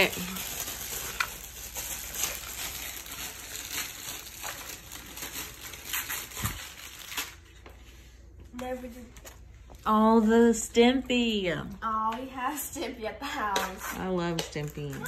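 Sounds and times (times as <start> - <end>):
plastic packaging rustling: 0.0 - 9.6.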